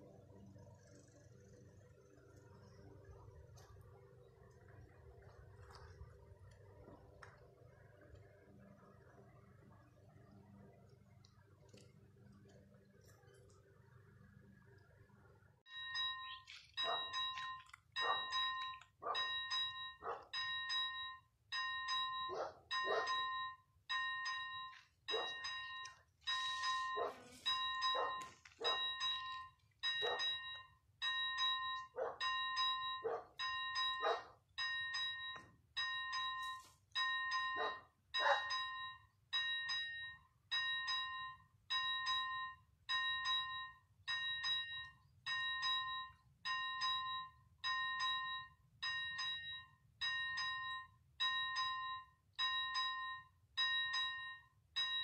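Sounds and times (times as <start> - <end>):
electronic crossing bell dinging: 15.7 - 55.0.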